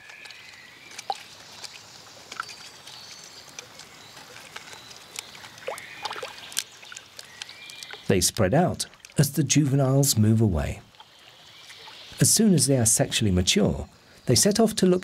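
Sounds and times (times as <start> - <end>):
beaver gnawing on branch: 0.0 - 8.1
water sloshing and dribbling: 0.0 - 12.2.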